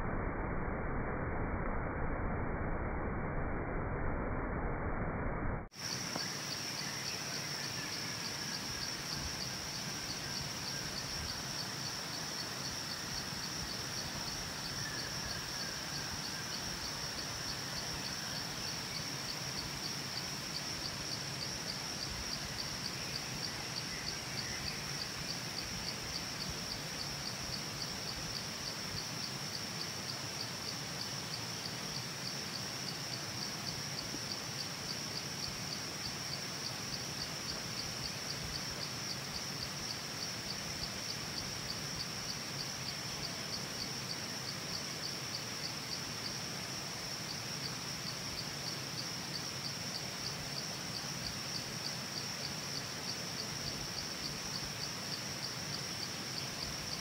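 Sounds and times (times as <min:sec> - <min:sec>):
faint bird chirps: 0:05.8 - 0:19.9
insects trilling: 0:05.8 - 0:57.0.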